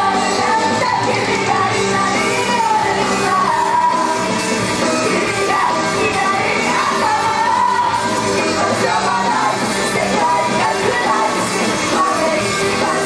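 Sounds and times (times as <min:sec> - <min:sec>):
girls singing into microphones: 0:00.0 - 0:04.2, 0:05.0 - 0:13.0
loud rock-style pop music: 0:00.0 - 0:13.0.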